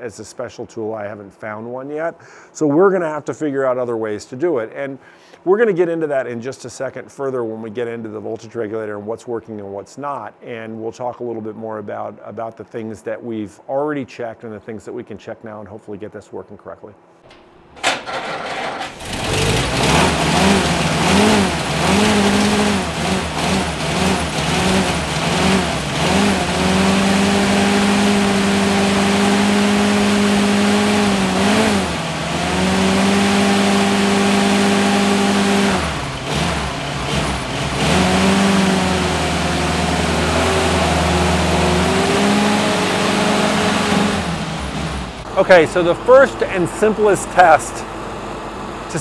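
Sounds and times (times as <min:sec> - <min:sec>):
engine starting and idling: 0:17.3 - 0:26.8.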